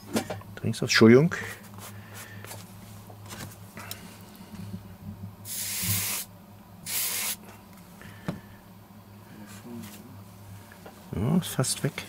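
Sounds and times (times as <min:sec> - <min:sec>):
steam hissing from iron: 0:05.5 - 0:06.3, 0:06.9 - 0:07.4.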